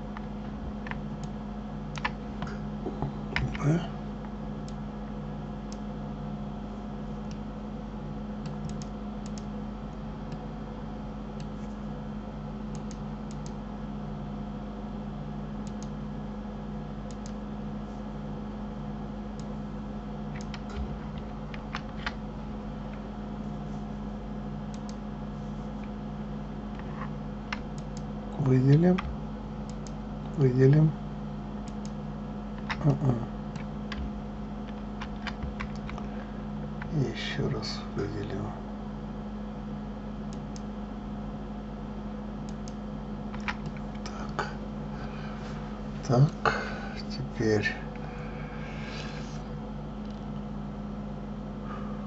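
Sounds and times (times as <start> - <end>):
low electrical hum: 0.0 - 52.0
computer keyboard and mouse clicks: 0.1 - 2.2, 8.4 - 9.5, 12.7 - 13.6, 15.6 - 16.0, 17.1 - 17.4, 20.3 - 22.2, 24.7 - 25.0, 26.7 - 28.1, 28.7 - 30.4, 31.6 - 32.0, 32.6 - 36.1, 42.4 - 44.2.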